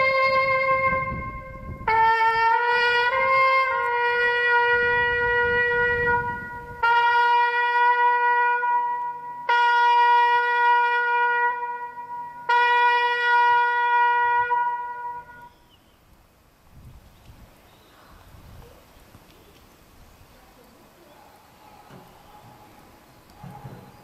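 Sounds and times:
trumpet sounding slow call: 0.0 - 15.6.

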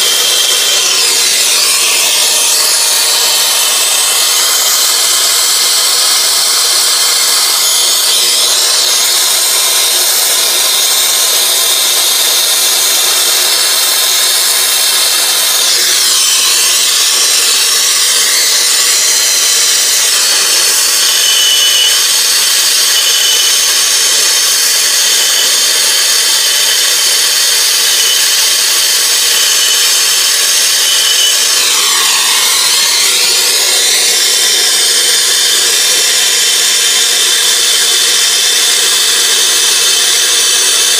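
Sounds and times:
brazing torch flame hissing: 0.0 - 40.9.

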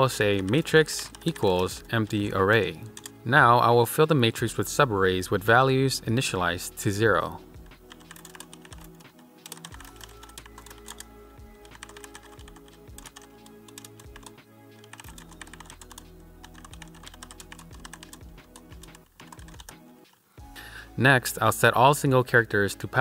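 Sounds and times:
soft background music: 0.0 - 23.0
keyboard typing: 0.2 - 3.2, 7.6 - 20.2.

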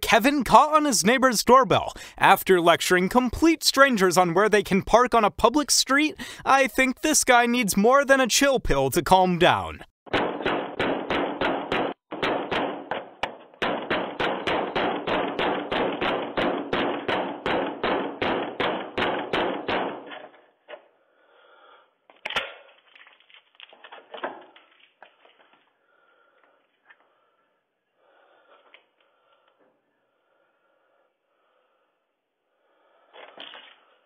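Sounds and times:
fist pounding on a door: 10.1 - 20.1
loud thump: 10.1 - 20.3.

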